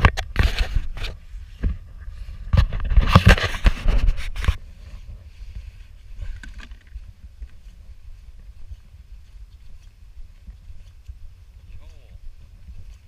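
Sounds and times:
camera handling scrapes and knocks: 0:00.0 - 0:01.8, 0:02.4 - 0:04.6.

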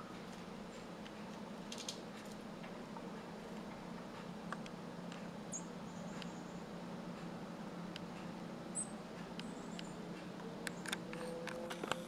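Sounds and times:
steady low hum: 0:00.0 - 0:12.0
chickadees calling: 0:05.5 - 0:06.8.

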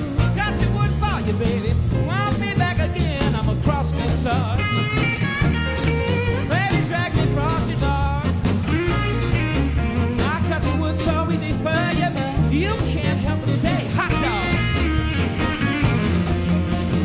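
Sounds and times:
blues band playing: 0:00.0 - 0:17.0
electric guitar bending notes: 0:04.0 - 0:17.0.

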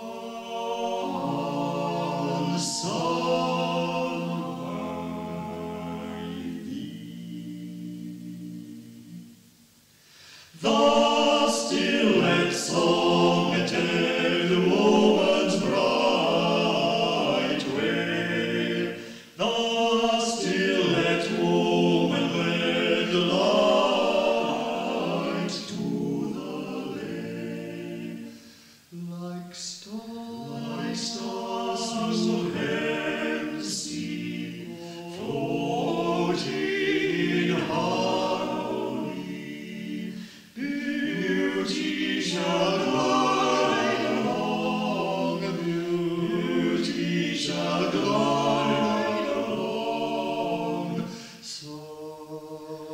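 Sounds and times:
amateur choir singing: 0:00.0 - 0:52.9.

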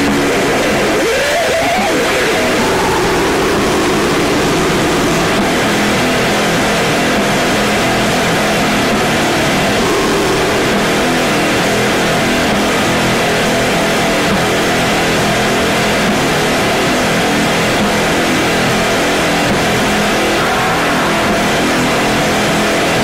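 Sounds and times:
heavily distorted noise wall: 0:00.0 - 0:23.0
wavering pitched tones: 0:20.1 - 0:23.0.

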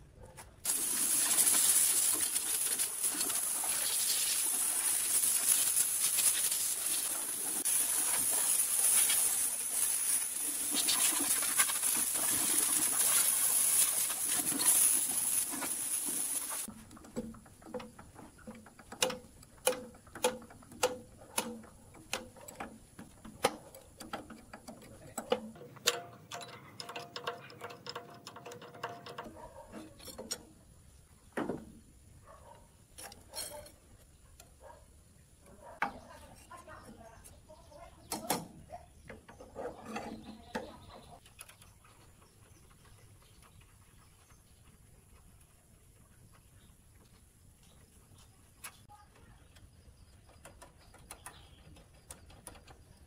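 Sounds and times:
compressed-air blow gun hissing: 0:00.7 - 0:16.7.

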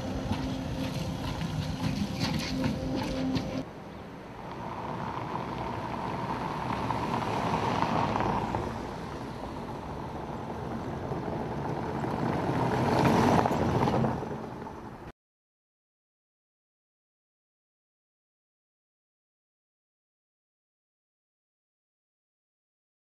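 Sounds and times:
cars driving past on cobblestones: 0:00.0 - 0:15.1.

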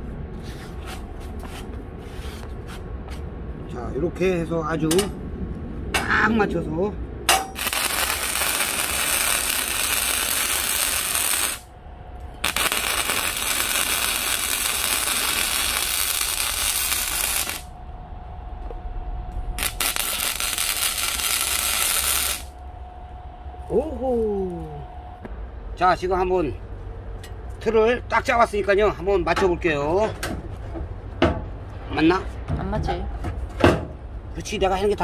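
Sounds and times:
welding arc crackling and sizzling: 0:07.5 - 0:11.7, 0:12.4 - 0:17.8, 0:19.5 - 0:22.6.

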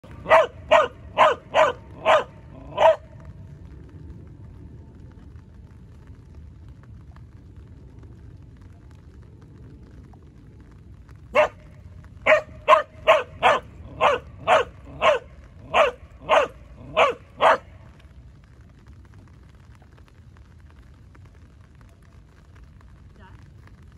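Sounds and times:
dog barking: 0:00.1 - 0:03.1, 0:11.4 - 0:11.6, 0:12.2 - 0:17.7.

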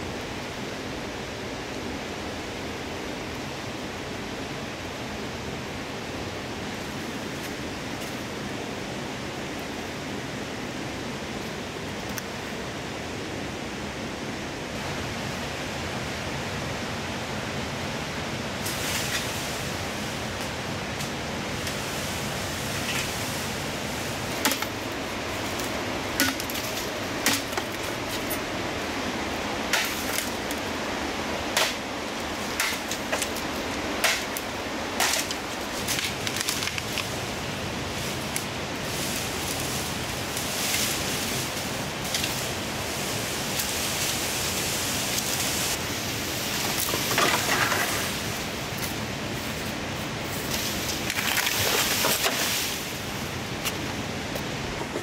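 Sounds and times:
leafy rustling: 0:04.4 - 0:55.0
blade chopping bamboo: 0:24.4 - 0:24.8, 0:26.2 - 0:28.3, 0:29.7 - 0:30.4, 0:31.5 - 0:31.8, 0:32.5 - 0:33.4, 0:34.0 - 0:36.8.

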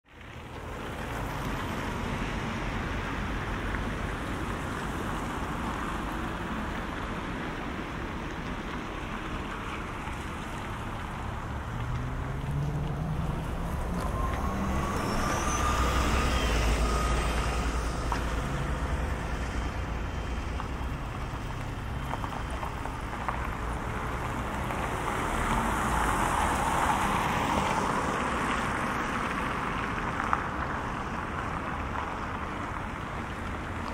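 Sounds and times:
road traffic passing: 0:00.1 - 0:33.9
vehicle engine whine pulling away: 0:09.0 - 0:32.8.

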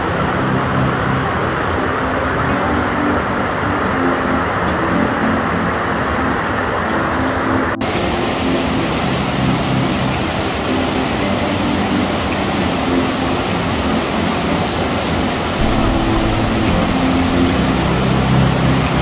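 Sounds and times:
water cascading over spillway: 0:07.8 - 0:19.0.

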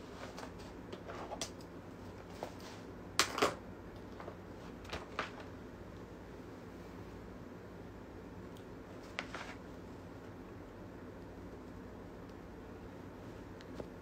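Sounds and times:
room hum: 0:00.0 - 0:14.0
paper rustling and tapping: 0:09.0 - 0:09.6.

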